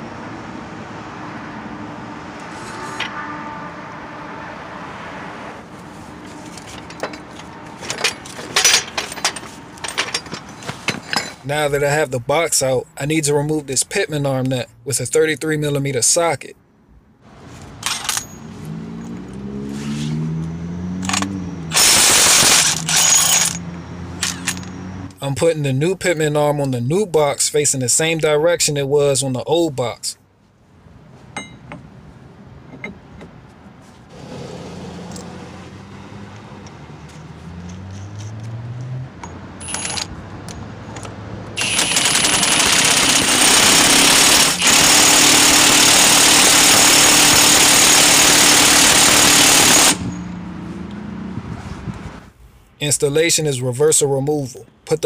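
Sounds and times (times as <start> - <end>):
impact wrench hammering: 21.1 - 23.6, 31.4 - 31.9, 41.6 - 50.2.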